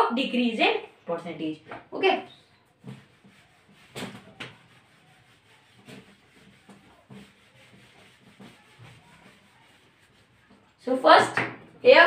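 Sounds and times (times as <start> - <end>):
eraser rubbing on whiteboard: 2.2 - 11.3.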